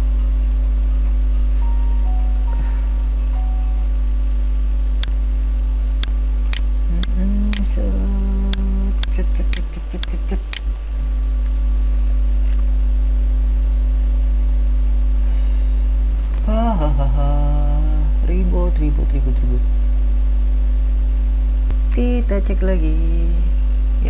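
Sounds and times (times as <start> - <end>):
loud electrical hum: 0.0 - 24.0
short low tone: 1.4 - 5.6, 6.9 - 10.0
sharp clicks: 6.0 - 7.7, 8.5 - 10.8.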